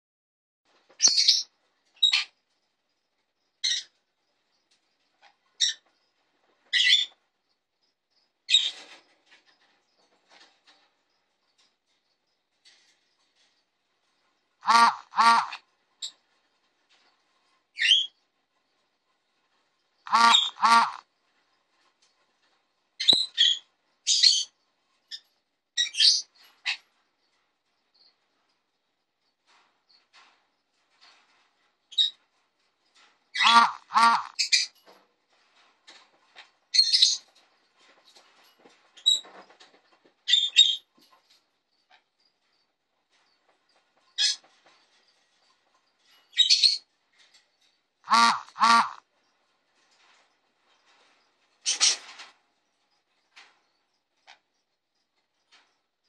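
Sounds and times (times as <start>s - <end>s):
parrot high-pitched calls: 14.6s - 15.6s, 20.1s - 21.0s, 33.3s - 34.7s, 48.1s - 49.0s.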